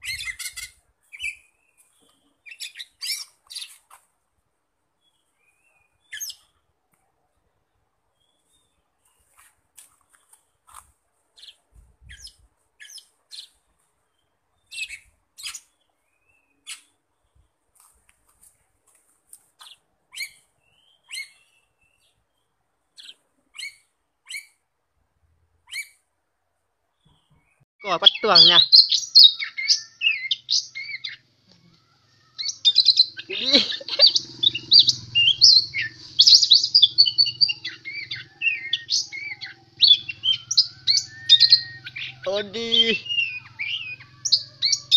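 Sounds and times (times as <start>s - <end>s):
bird singing sharp chirps: 27.0s - 44.9s.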